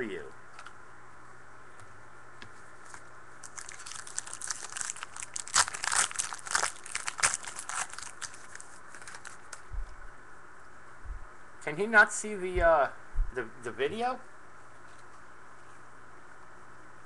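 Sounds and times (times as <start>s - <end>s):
foil pack crinkling and tearing: 3.4s - 9.7s.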